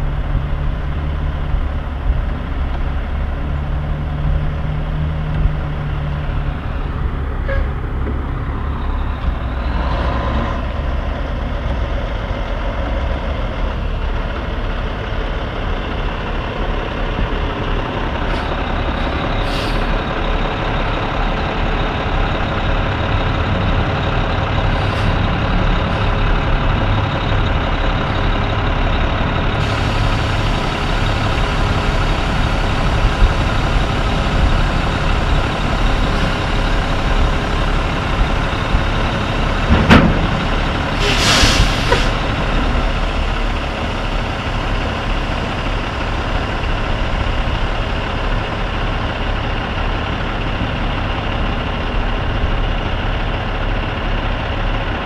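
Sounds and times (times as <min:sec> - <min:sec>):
diesel truck engine running: 0:00.0 - 0:55.0
air brake hisses: 0:19.4 - 0:20.0, 0:41.0 - 0:42.2.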